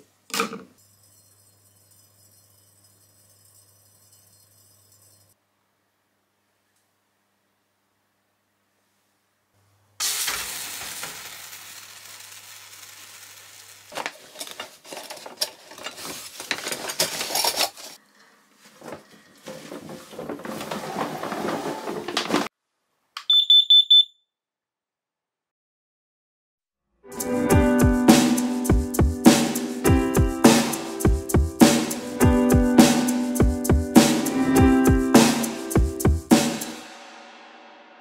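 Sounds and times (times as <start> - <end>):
water sizzling on hot metal: 10.0 - 14.2
high alarm beeps: 23.3 - 24.2.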